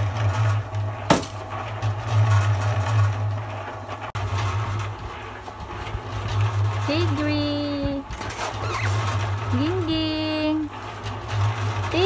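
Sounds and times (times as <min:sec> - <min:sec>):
concrete mixer humming: 0:00.0 - 0:12.0
sharp knock: 0:01.1 - 0:01.4.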